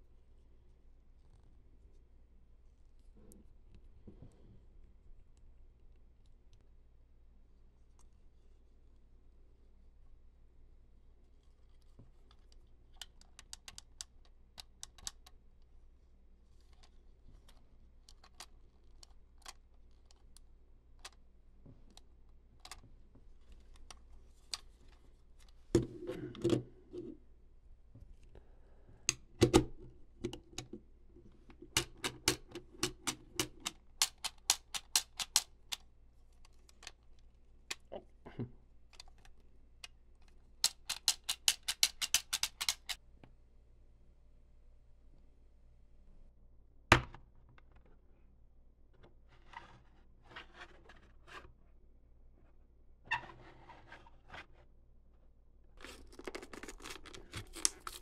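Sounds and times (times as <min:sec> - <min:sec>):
plastic toys clicking: 0:31.8 - 0:35.8, 0:40.6 - 0:43.0.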